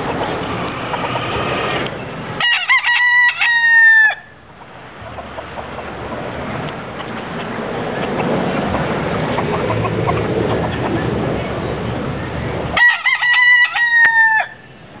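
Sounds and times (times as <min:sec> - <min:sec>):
steady background noise: 0:00.0 - 0:15.0
rooster crowing: 0:02.4 - 0:04.4, 0:12.8 - 0:14.7
faint chicken clucks: 0:07.0 - 0:11.0.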